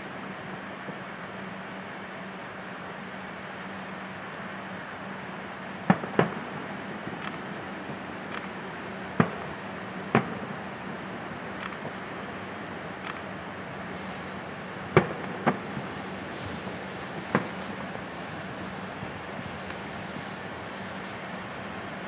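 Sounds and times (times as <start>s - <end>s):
steady background hiss: 0.0s - 22.0s
distant firework bangs: 9.1s - 10.6s, 14.8s - 20.0s.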